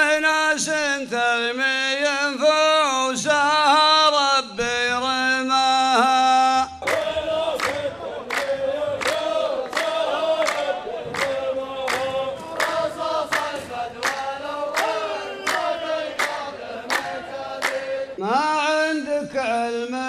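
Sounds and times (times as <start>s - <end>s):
men chanting in unison: 0.0s - 20.0s
hand claps: 6.8s - 18.1s.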